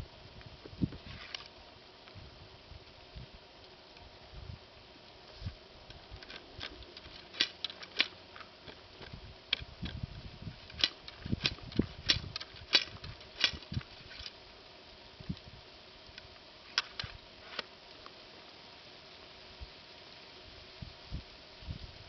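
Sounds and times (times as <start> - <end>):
wind rumbling on microphone: 0.0 - 1.4, 2.1 - 3.5, 4.1 - 7.2, 8.8 - 14.3, 15.0 - 16.2, 20.4 - 22.0
clicks and taps of gun loading: 6.2 - 10.0.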